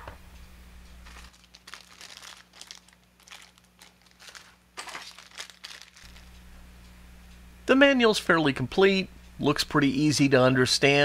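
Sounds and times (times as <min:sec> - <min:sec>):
plastic bag crinkling: 0:01.0 - 0:06.4.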